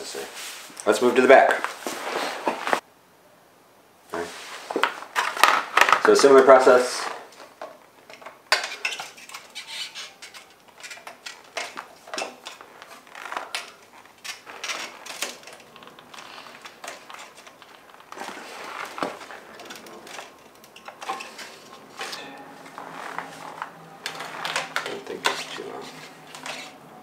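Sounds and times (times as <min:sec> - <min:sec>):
plastic mudguard clicking and rustling: 0:04.8 - 0:22.2, 0:23.1 - 0:26.8.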